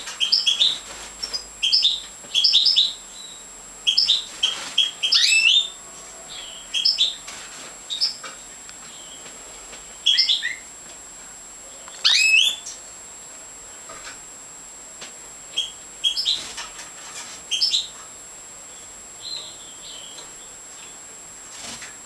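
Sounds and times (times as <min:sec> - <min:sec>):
goldfinch chirping: 0:00.2 - 0:07.2, 0:10.0 - 0:10.6, 0:12.0 - 0:12.8, 0:15.6 - 0:16.4, 0:17.5 - 0:17.9.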